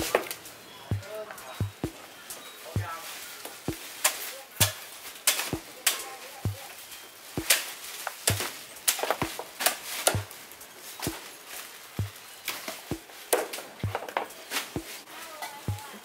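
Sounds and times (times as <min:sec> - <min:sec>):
cleaver chopping on wooden block: 0:00.9 - 0:02.0, 0:07.4 - 0:07.6, 0:08.3 - 0:08.5.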